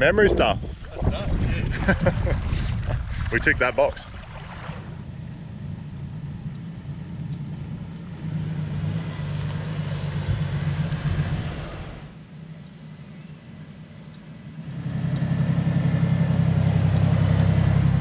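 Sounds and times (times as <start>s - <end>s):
truck engine running: 4.6s - 18.0s.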